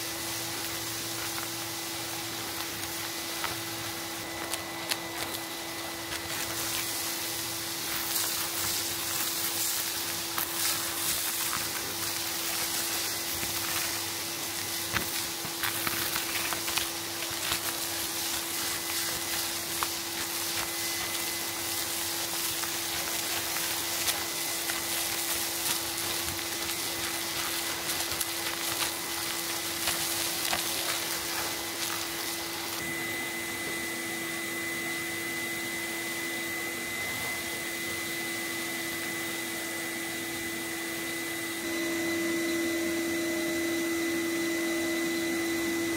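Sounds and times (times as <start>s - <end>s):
dust and grit crackling in tube: 0.0s - 32.8s
vacuum cleaner running: 0.0s - 45.9s.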